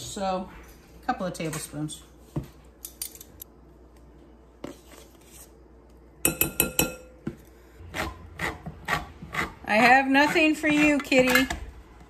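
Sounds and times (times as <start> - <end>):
metal spoon clinking on glass bowl: 6.2 - 7.1.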